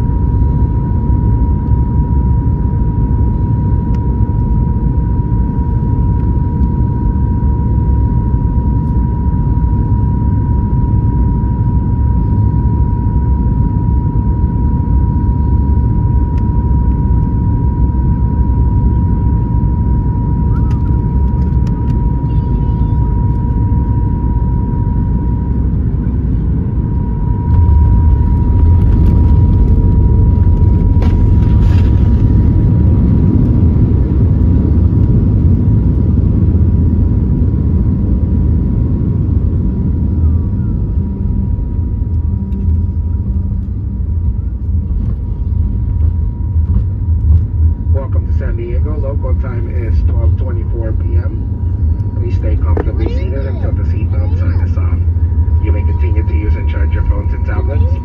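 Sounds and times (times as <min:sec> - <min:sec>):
aircraft cabin engine rumble: 0:00.0 - 0:58.0
aircraft touching down: 0:00.0 - 0:58.0
thin steady whine: 0:00.0 - 0:58.0.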